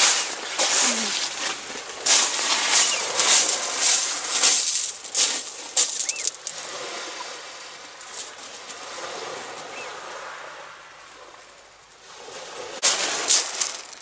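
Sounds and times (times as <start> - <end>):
footsteps: 0.0 - 6.6.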